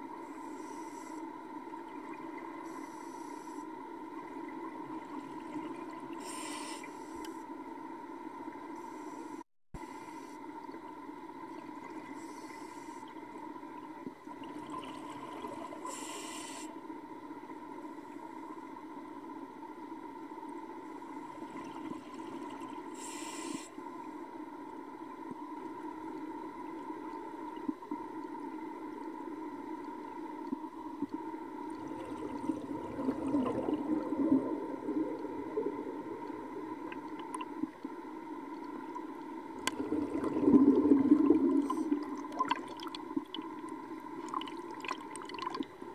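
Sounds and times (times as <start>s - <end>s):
underwater drone: 0.0s - 45.9s
water and bubble noise: 4.0s - 6.5s, 11.3s - 16.1s, 26.4s - 45.9s
short hissing bursts: 6.2s - 7.3s, 15.9s - 16.7s, 23.0s - 23.8s.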